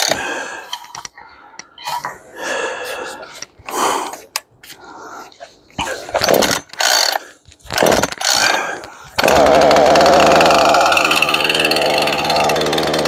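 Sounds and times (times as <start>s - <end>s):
chainsaw starter cord yanks: 6.1s - 13.0s
chainsaw engine running: 9.2s - 13.0s.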